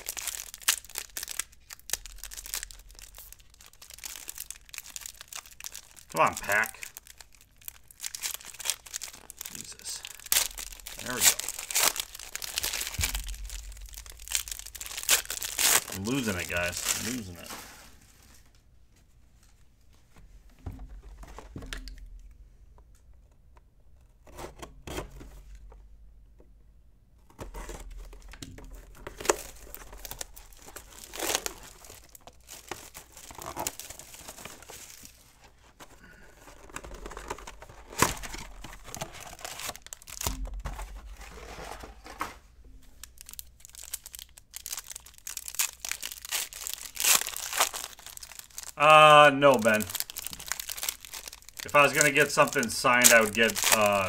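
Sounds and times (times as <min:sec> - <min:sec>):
card packs torn open: 0:00.0 - 0:17.6, 0:27.7 - 0:41.3, 0:43.0 - 0:54.0
wrappers crinkling: 0:00.0 - 0:18.6, 0:28.0 - 0:42.2, 0:42.8 - 0:54.0.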